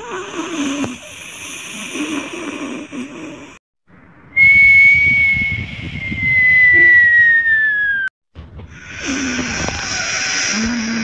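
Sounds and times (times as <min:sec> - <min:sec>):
comic snoring: 0:00.0 - 0:03.6, 0:08.7 - 0:11.0
whistle on out-breath: 0:04.3 - 0:08.1.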